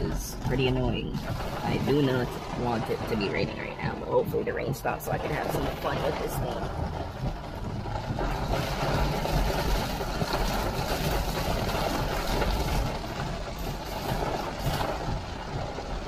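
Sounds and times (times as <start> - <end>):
heavy rain: 0.0 - 16.0
low engine hum: 0.0 - 16.0.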